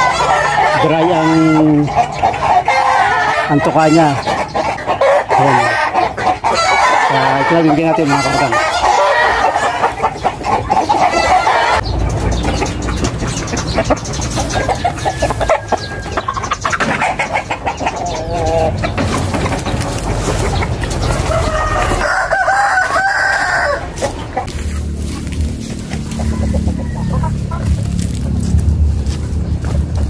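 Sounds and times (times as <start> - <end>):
rooster crowing: 0.0 - 1.6, 11.1 - 11.8, 15.0 - 16.3, 21.2 - 24.1, 26.0 - 27.7
chickens clucking: 0.0 - 30.0
low rumble: 23.7 - 30.0.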